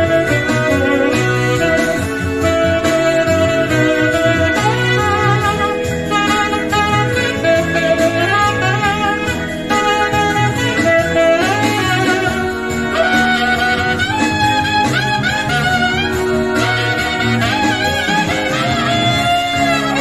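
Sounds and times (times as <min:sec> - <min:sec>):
backing track with bass line: 0:00.0 - 0:20.0
saxophone melody: 0:00.0 - 0:20.0.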